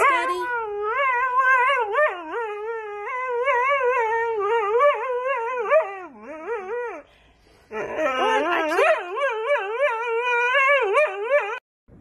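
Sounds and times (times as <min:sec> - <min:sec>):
dog howling and whining: 0:00.0 - 0:07.1, 0:07.7 - 0:11.6.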